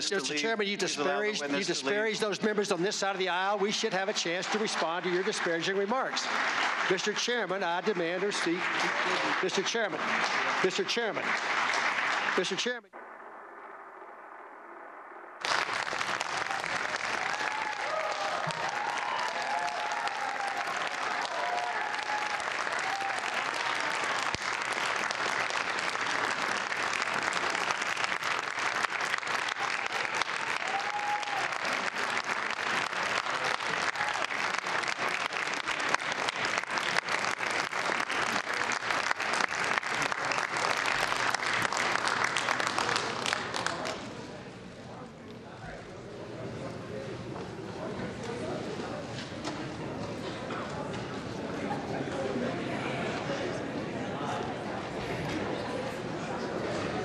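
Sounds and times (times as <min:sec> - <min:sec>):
crowd applauding and cheering: 0:01.8 - 0:44.4.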